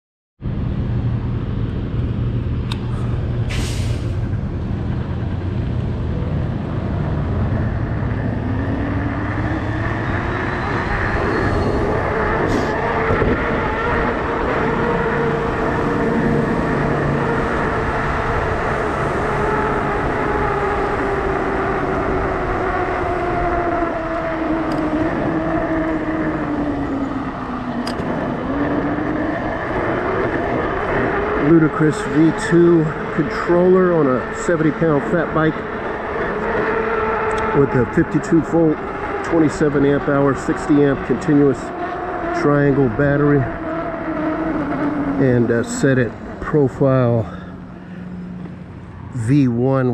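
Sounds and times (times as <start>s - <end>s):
tyre road noise and wind: 0.4s - 49.9s.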